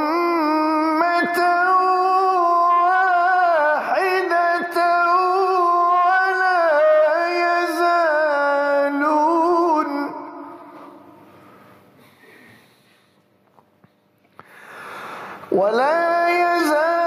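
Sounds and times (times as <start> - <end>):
man reciting melodically: 0.0 - 11.2, 15.4 - 17.0.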